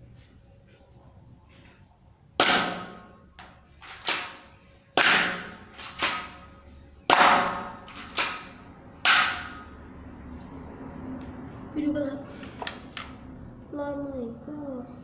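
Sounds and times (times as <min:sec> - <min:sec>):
air pistol shots: 0:02.4 - 0:03.2, 0:03.8 - 0:06.5, 0:07.1 - 0:09.6.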